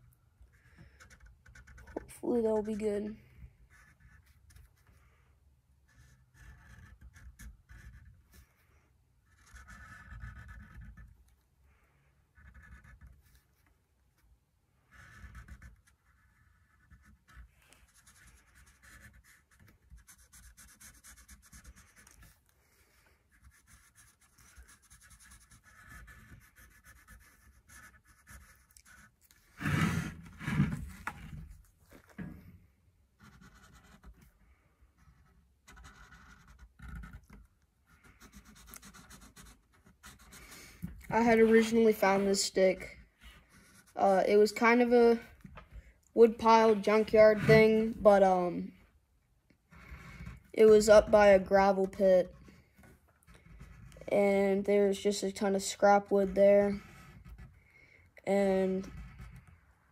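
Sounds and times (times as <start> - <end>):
marker scratching on wood: 0.5 - 5.0, 5.8 - 11.3, 12.2 - 13.8, 14.8 - 31.5, 33.2 - 34.3, 35.0 - 45.5, 46.2 - 48.6, 55.8 - 57.5.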